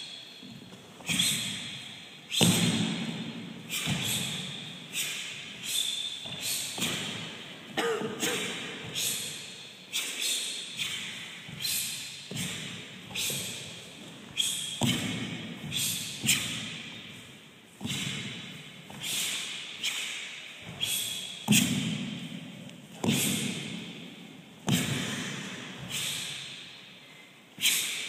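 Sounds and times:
forceful exhalations: 0:24.6 - 0:28.0.

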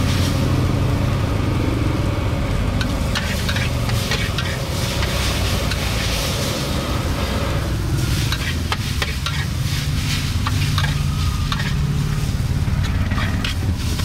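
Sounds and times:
food frying: 0:02.3 - 0:14.0
utensil clinking and scraping: 0:02.8 - 0:06.5, 0:08.0 - 0:14.0.

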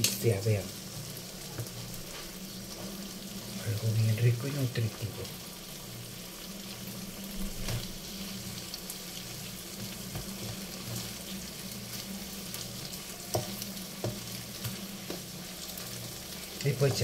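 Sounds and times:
food sizzling in a frying pan: 0:00.0 - 0:17.0
wooden spatula knocking on pan: 0:13.3 - 0:15.3.

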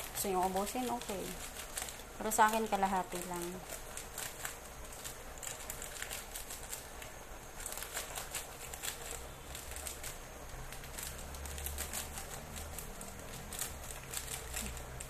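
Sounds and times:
plastic sachet crinkling: 0:00.0 - 0:15.0.

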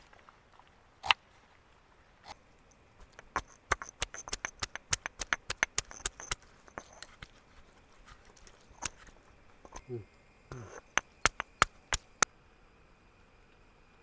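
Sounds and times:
rapid sharp knocks: 0:03.0 - 0:07.0, 0:10.5 - 0:12.2.

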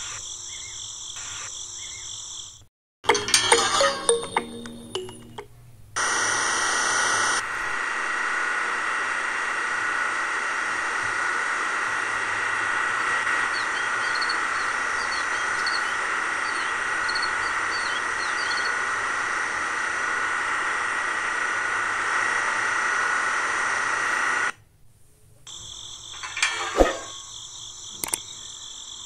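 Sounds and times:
small electric pump whining: 0:06.0 - 0:24.5.

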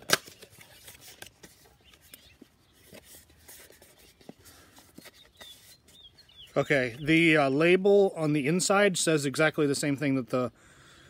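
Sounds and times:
packaging snap: 0:00.0 - 0:02.3
wrapper clicks and rustling: 0:00.0 - 0:05.8.

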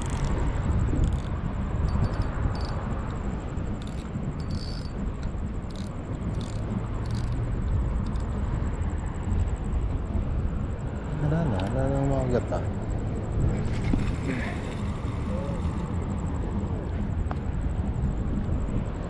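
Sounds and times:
insect trilling: 0:00.0 - 0:02.9, 0:03.7 - 0:05.0, 0:05.6 - 0:08.3, 0:14.1 - 0:16.1
low outdoor rumble: 0:00.0 - 0:19.0.

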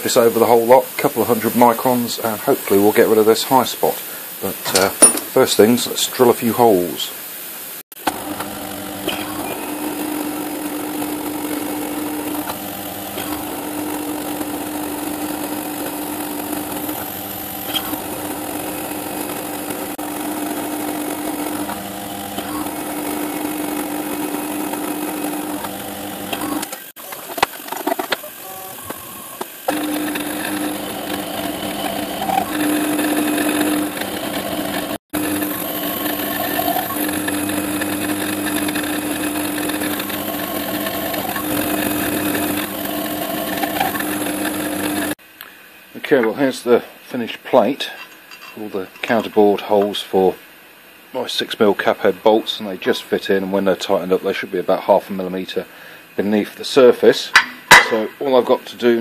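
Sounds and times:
milling machine drilling metal: 0:08.0 - 0:26.9, 0:28.3 - 0:45.2.

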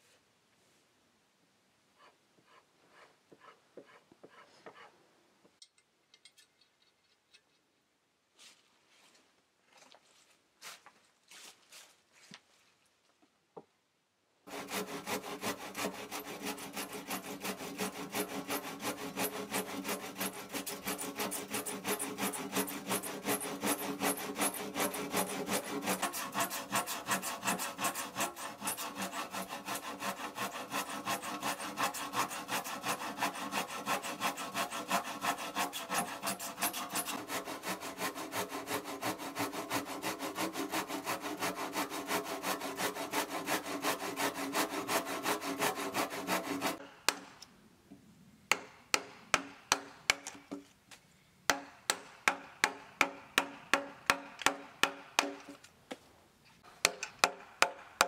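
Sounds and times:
hand saw cutting wood: 0:14.5 - 0:47.3.

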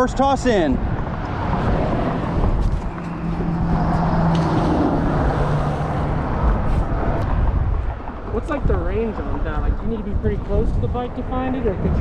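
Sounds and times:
road traffic: 0:00.0 - 0:12.0
low engine hum: 0:00.8 - 0:08.4.

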